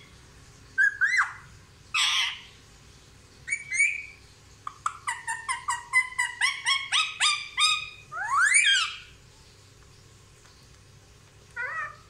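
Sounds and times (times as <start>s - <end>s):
parakeet calling: 0.0s - 2.6s, 3.4s - 9.2s, 11.5s - 12.0s.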